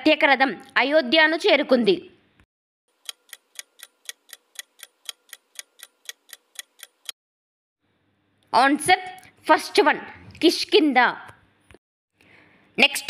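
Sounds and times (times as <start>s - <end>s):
clock ticking: 3.0s - 7.2s.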